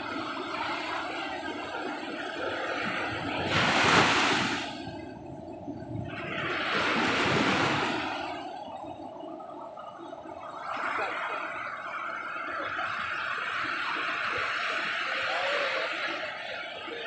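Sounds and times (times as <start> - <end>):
sea surf breaking on beach: 0.0 - 5.1, 6.1 - 8.7.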